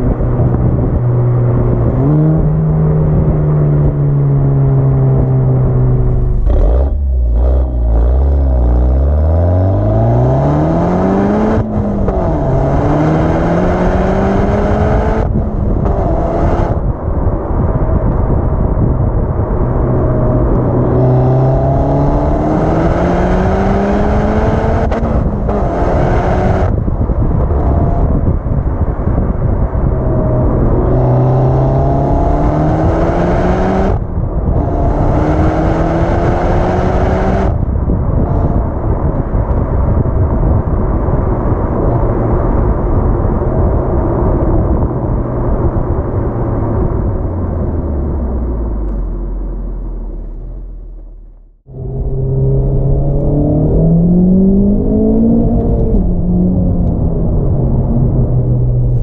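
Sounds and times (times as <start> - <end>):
car exhaust accelerating hard: 0.0 - 59.0.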